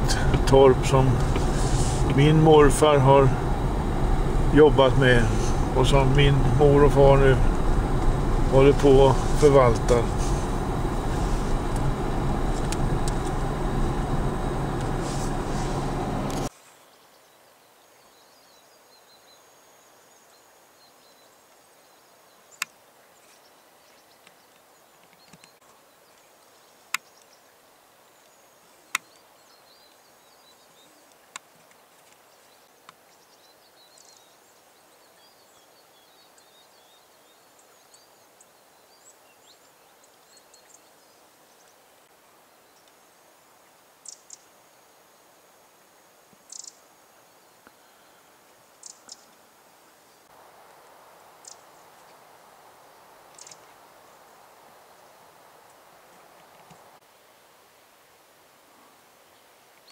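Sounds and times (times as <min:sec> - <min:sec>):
small birds chirping: 0:46.5 - 0:49.4, 0:51.4 - 0:52.2, 0:53.3 - 0:55.2.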